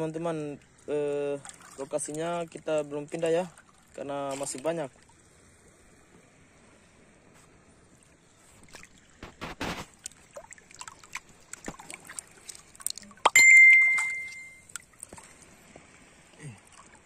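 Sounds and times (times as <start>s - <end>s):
hands splashing in shallow water: 8.6s - 15.8s
sharp knock with bell-like ring: 13.3s - 14.6s.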